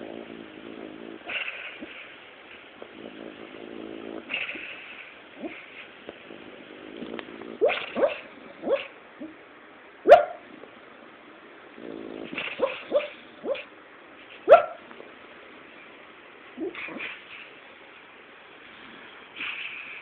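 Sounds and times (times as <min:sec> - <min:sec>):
dog barking in sleep: 0:00.6 - 0:02.1, 0:02.8 - 0:09.4, 0:10.1 - 0:10.6, 0:11.9 - 0:13.7, 0:14.4 - 0:14.9, 0:16.6 - 0:17.4.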